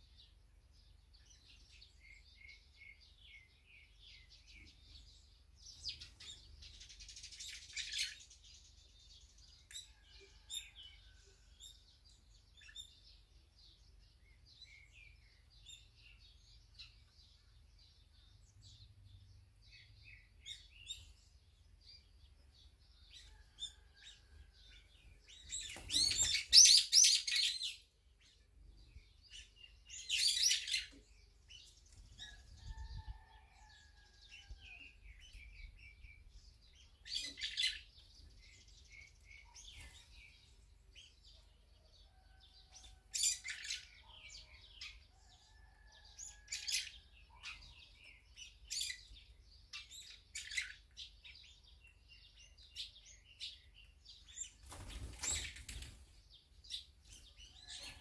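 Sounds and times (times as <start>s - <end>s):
birds chattering calls: 24.7s - 28.4s, 29.1s - 41.2s
wings fluttering: 25.4s - 26.9s, 54.4s - 56.2s.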